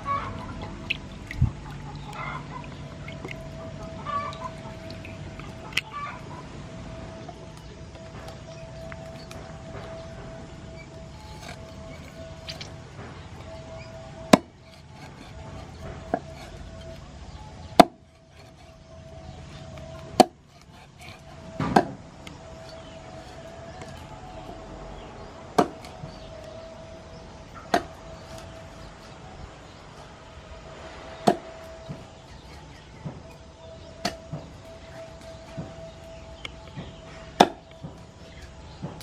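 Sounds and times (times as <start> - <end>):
cleaver chopping fish on wood: 11.1 - 17.0, 17.7 - 18.9, 19.6 - 24.1, 25.6 - 26.7, 27.6 - 28.6, 33.8 - 38.0.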